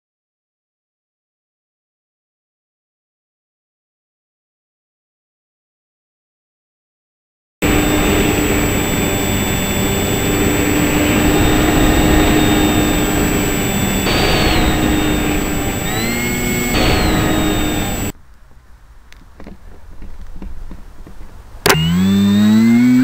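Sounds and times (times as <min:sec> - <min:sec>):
model plane motor whining: 0:07.6 - 0:18.1, 0:21.6 - 0:23.0
steady rush of noise: 0:07.6 - 0:19.0.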